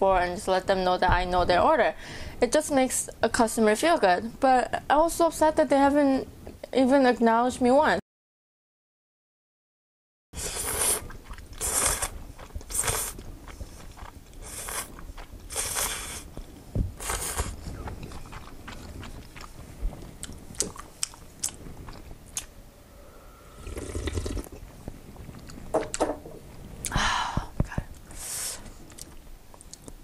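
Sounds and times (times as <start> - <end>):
noodles slurped: 10.4 - 16.3, 17.0 - 22.5, 23.6 - 24.6
chewing with wet mouth clicks: 11.1 - 16.0, 17.1 - 22.5
broth slurped from bowl: 23.3 - 24.6.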